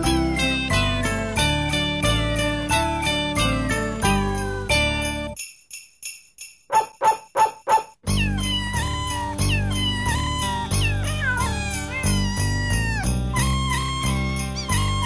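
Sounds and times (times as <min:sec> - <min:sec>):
cat meows singing a tune: 0:08.1 - 0:15.0.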